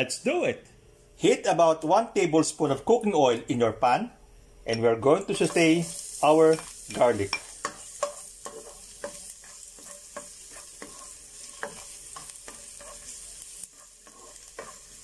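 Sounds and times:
garlic sizzling in oil: 0:05.1 - 0:15.0
plastic spoon scraping a pan: 0:07.4 - 0:15.0.

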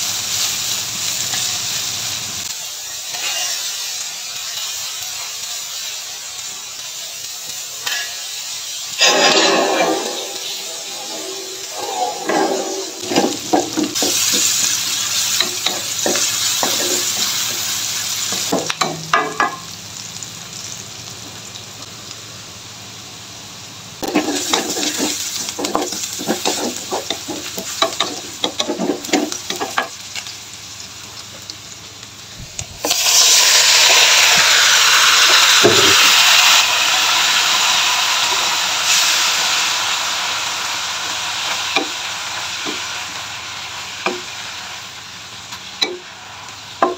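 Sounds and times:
vegetables sizzling in oil: 0:00.0 - 0:46.9
stirring scrapes and taps on pan: 0:24.2 - 0:29.9.

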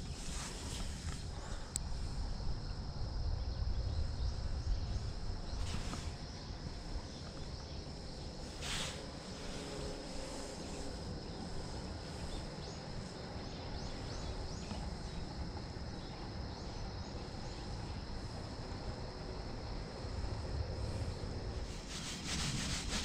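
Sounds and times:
high-pitched insect drone: 0:00.0 - 0:23.0
wind rumble on microphone: 0:00.0 - 0:23.0
rushing hiss: 0:08.4 - 0:13.2, 0:17.7 - 0:23.0.

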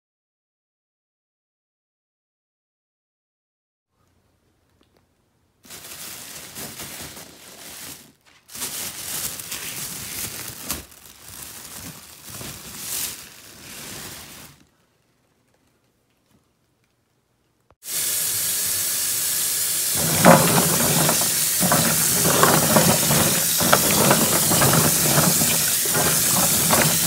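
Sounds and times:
crinkling rustling noise: 0:04.7 - 0:17.0, 0:19.9 - 0:27.0.

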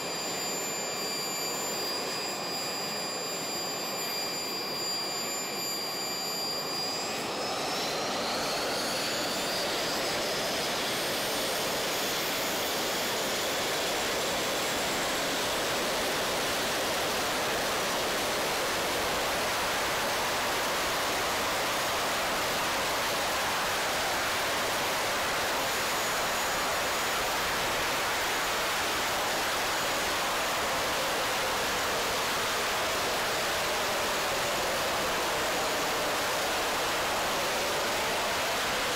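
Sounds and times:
jet turbines whining and roaring: 0:00.0 - 0:38.9.

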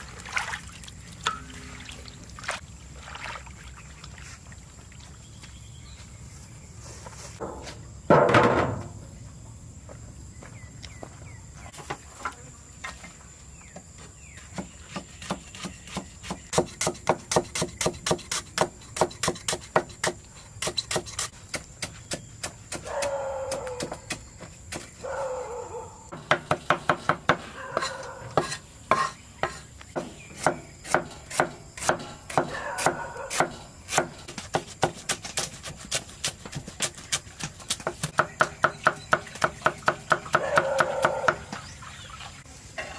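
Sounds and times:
knife chopping on cutting board: 0:14.6 - 0:24.2, 0:26.1 - 0:41.4.

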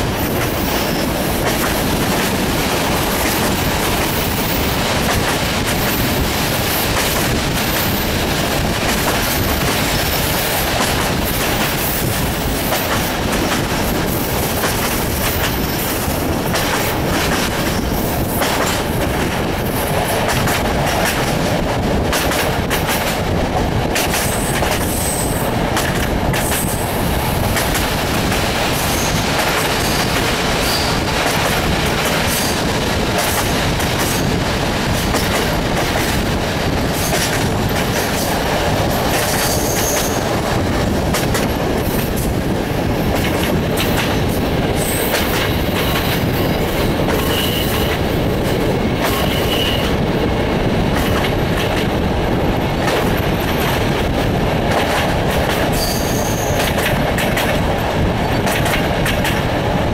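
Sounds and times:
train wheels rushing on rail: 0:00.0 - 0:59.9
wheels clacking over rail joints: 0:50.9 - 0:59.8.

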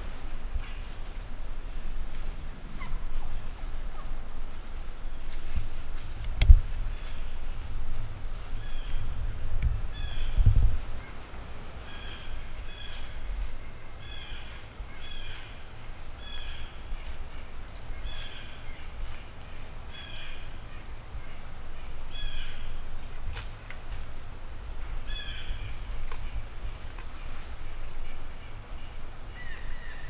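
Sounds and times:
steady low rumble: 0:00.0 - 0:29.3.

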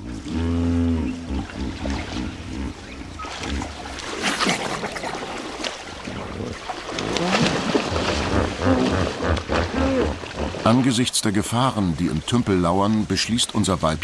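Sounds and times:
hippopotamus grunting: 0:00.0 - 0:10.9
water splashing and sloshing: 0:00.0 - 0:14.0.

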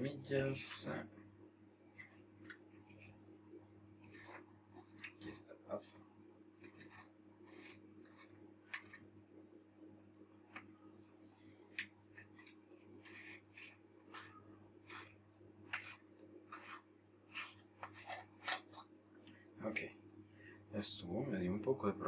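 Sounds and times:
steady low hum: 0:00.0 - 0:22.0
fingers scraping threaded ring: 0:06.6 - 0:09.0, 0:12.2 - 0:18.8.

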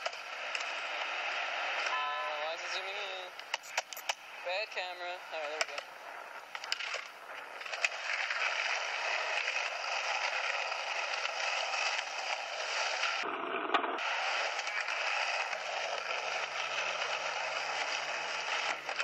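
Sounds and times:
skateboard clack: 0:00.0 - 0:04.4, 0:05.0 - 0:19.0
skateboard wheels rolling on concrete: 0:00.0 - 0:19.0.

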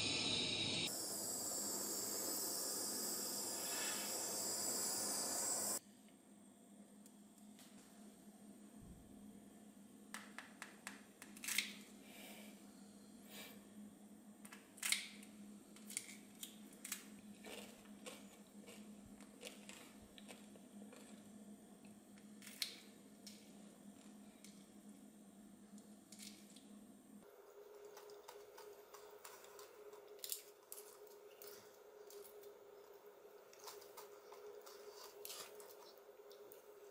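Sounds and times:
faint steady hum: 0:00.0 - 0:36.9.

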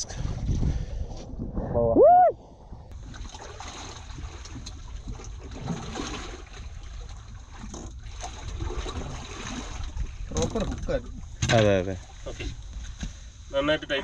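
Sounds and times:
person shouting: 0:01.8 - 0:02.4
water trickling and splashing: 0:02.9 - 0:13.5.

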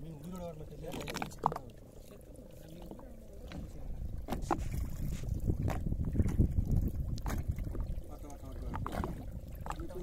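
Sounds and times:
water slapping against boat: 0:00.0 - 0:10.0
sharp knocks or splashes: 0:03.4 - 0:07.9, 0:08.6 - 0:10.0.

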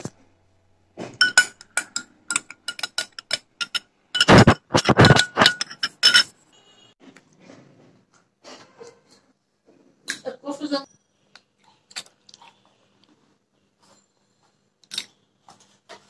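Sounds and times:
spoon clinking in glass: 0:01.2 - 0:06.3.

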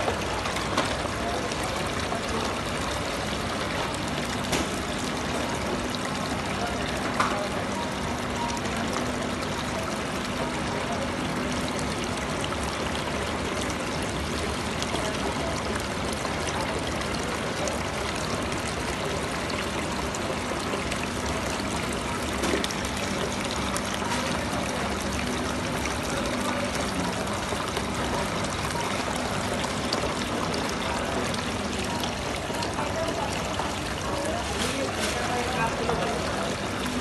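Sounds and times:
fountain water splashing: 0:00.0 - 0:37.0.

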